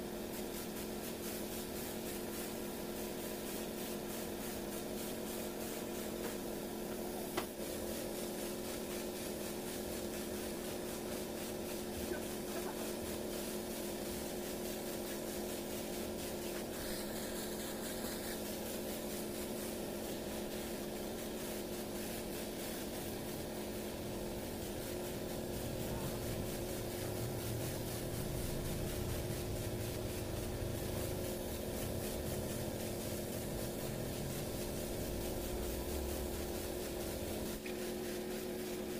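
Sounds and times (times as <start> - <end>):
air compressor hum: 0.0 - 38.9
spray gun hissing: 0.0 - 38.9.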